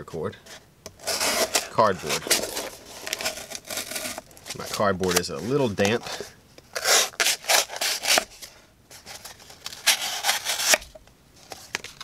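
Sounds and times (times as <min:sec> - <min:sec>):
knife sawing through cardboard: 0:01.0 - 0:08.3, 0:09.8 - 0:10.8.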